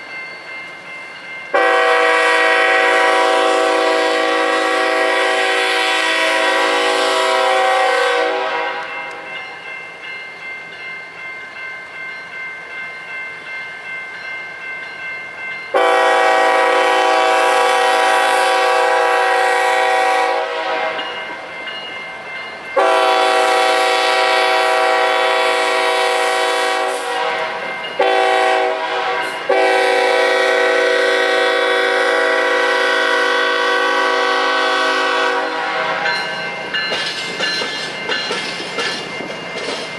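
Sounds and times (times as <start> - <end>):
locomotive air horn blasts: 1.5 - 9.3, 15.7 - 21.2, 22.8 - 36.2
wheels clicking over rail joints: 36.1 - 39.9.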